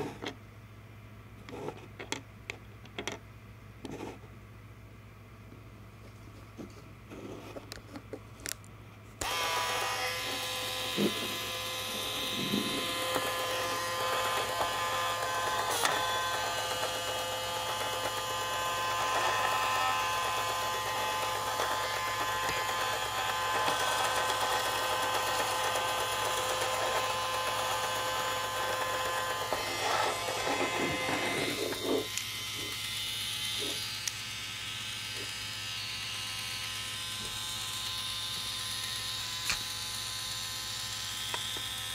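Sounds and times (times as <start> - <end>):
electric motor whine with gear buzz: 9.2 - 41.9.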